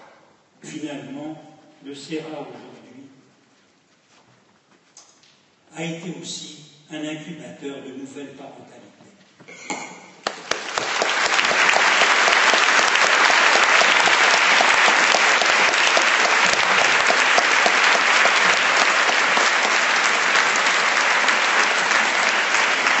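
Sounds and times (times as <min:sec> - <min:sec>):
large audience applauding: 0:10.2 - 0:23.0.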